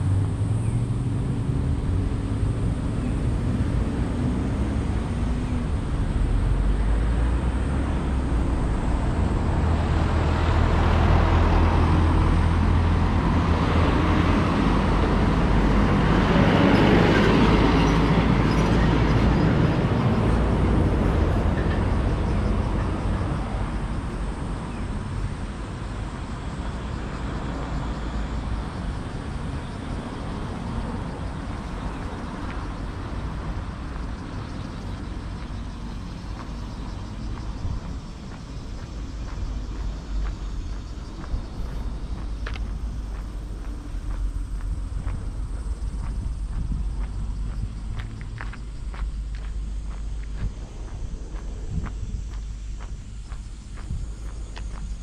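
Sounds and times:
low traffic rumble: 0:00.0 - 0:55.0
vehicle passing by: 0:00.0 - 0:55.0.

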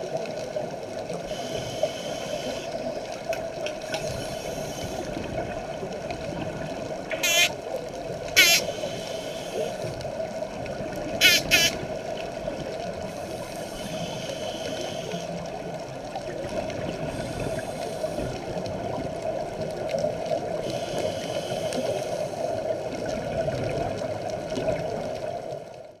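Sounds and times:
underwater rush and gurgle: 0:00.0 - 0:26.0
soft regulator hiss: 0:01.2 - 0:03.2, 0:03.8 - 0:05.5, 0:07.1 - 0:07.5, 0:08.4 - 0:10.1, 0:11.2 - 0:11.9, 0:12.9 - 0:15.8, 0:17.0 - 0:18.6, 0:20.6 - 0:22.7.

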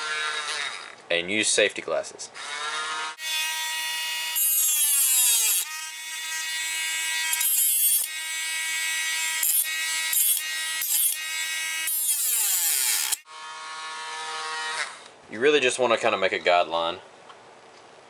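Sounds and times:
rotary tool cutting plastic: 0:00.0 - 0:01.0, 0:02.4 - 0:15.1.

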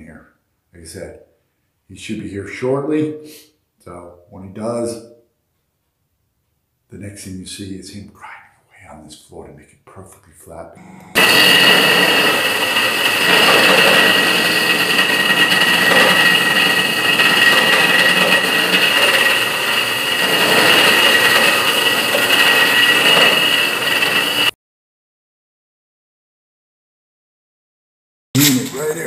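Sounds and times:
concrete floor grinder: 0:10.8 - 0:24.6
high whine: 0:10.8 - 0:24.6, 0:28.4 - 0:29.0.

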